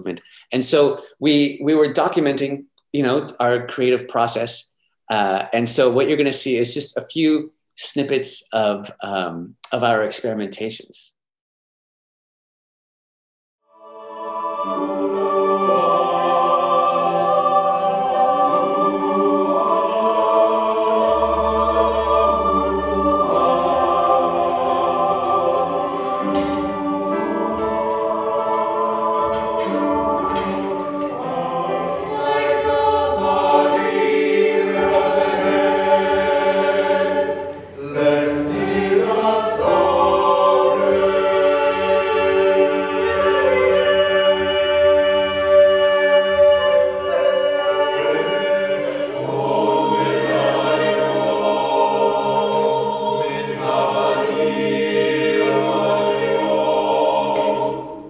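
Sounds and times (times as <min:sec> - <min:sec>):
choir singing sustained chords: 0:13.7 - 0:58.0.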